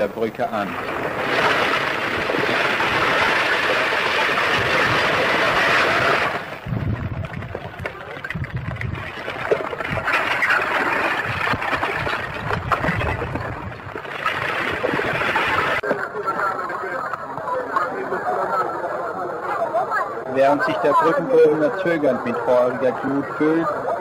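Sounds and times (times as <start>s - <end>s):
lava rumbling: 0.0s - 15.8s
rock chunks clattering: 0.8s - 15.8s.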